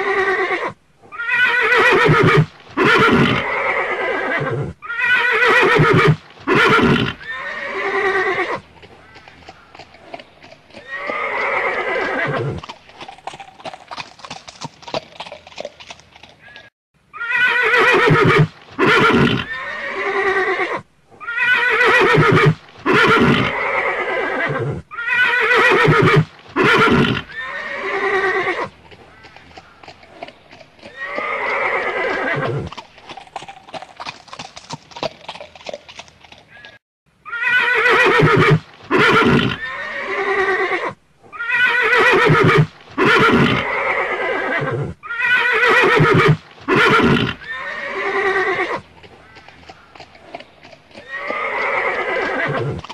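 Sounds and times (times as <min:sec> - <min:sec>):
horse neighing: 0:00.0 - 0:09.9, 0:10.7 - 0:12.7, 0:16.4 - 0:32.8, 0:36.5 - 0:52.9
hoofbeats clip-clopping: 0:05.6 - 0:16.7, 0:25.2 - 0:36.8, 0:45.6 - 0:52.9.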